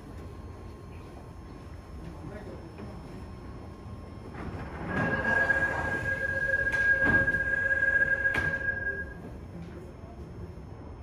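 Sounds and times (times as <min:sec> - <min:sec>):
train clunks: 0:04.2 - 0:09.4
train brakes squealing: 0:04.8 - 0:09.3.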